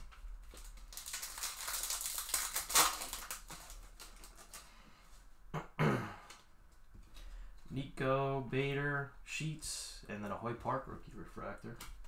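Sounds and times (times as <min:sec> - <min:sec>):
foil wrapper tearing and crinkling: 0:00.0 - 0:04.6
cards rustling: 0:00.4 - 0:04.7.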